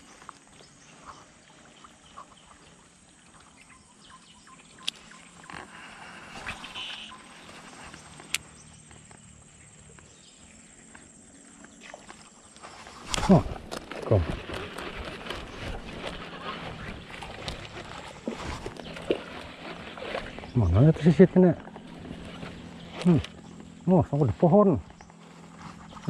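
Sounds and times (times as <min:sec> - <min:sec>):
bird calls: 0:00.0 - 0:26.0
high insect buzz: 0:05.4 - 0:13.7.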